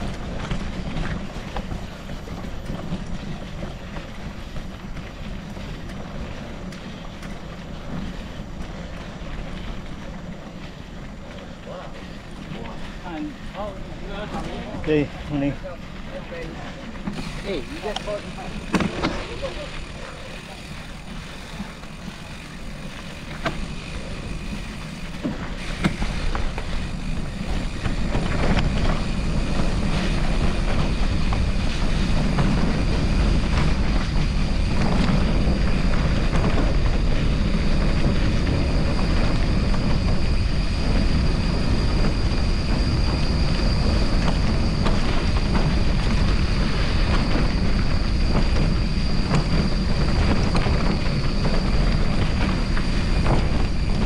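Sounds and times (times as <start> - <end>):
wind on microphone: 0.0 - 11.3, 17.0 - 54.0
bike tyre rumble on gravel: 0.0 - 54.0
thin high whine: 17.1 - 54.0.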